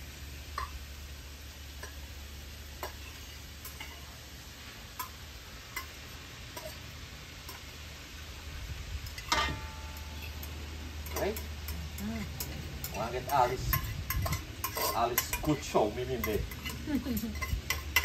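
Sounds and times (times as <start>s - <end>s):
low steady hum: 0.0s - 18.0s
light clicks of pot and utensils: 0.5s - 0.9s, 1.7s - 7.8s, 9.0s - 18.0s
spoon clanking on pot: 2.8s - 4.1s, 5.0s - 6.8s, 9.1s - 18.0s.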